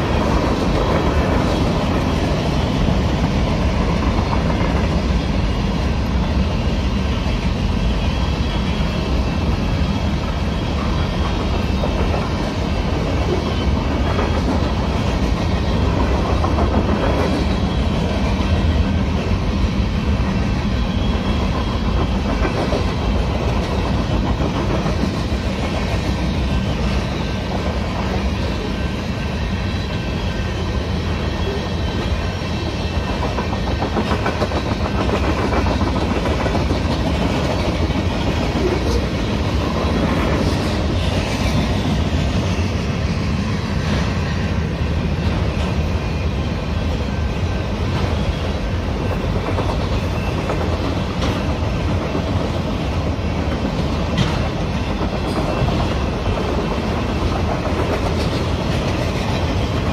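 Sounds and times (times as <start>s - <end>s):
freight train rumbling past: 0.0s - 59.9s
wheels clicking over rail joints: 48.9s - 59.9s.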